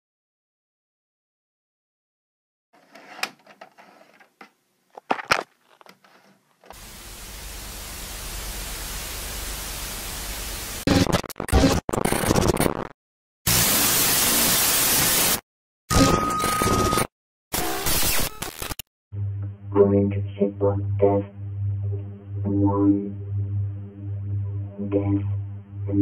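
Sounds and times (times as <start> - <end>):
tape static hiss: 4.4 - 11.1
stuttering static glitches: 10.8 - 18.8.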